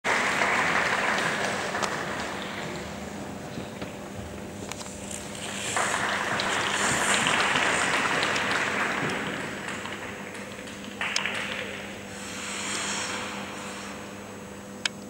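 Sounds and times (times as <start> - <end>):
audience applauding: 0.0 - 3.0, 5.3 - 12.0.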